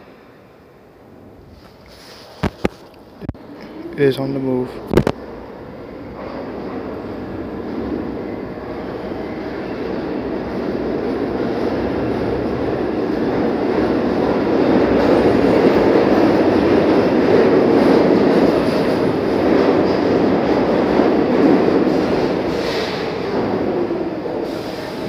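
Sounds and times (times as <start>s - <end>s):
train wheels rumbling on rails: 4.6s - 25.0s.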